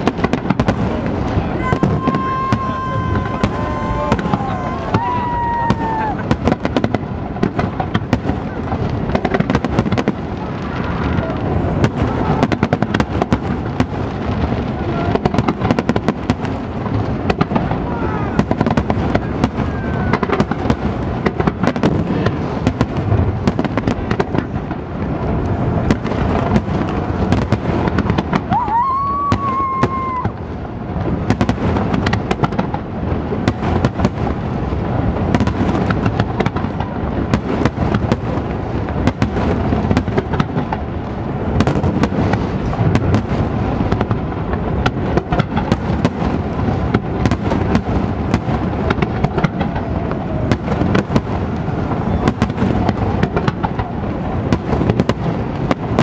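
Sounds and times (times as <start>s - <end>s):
fireworks bursting and crackling: 0.0s - 56.0s
firework whistle rising: 1.5s - 6.4s, 28.4s - 30.4s.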